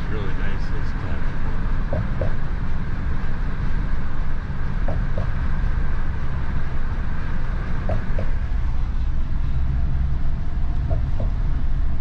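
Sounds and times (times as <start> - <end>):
road and engine rumble: 0.0 - 12.0.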